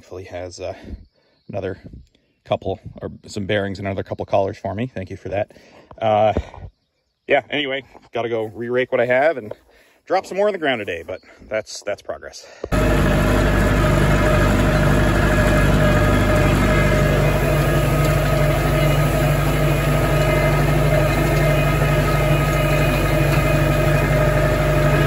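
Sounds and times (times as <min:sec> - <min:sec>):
tractor engine running: 0:12.7 - 0:25.0.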